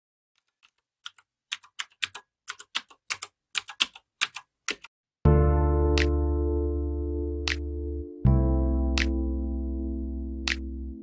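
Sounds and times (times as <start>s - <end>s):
sustained music chord: 5.3s - 11.0s.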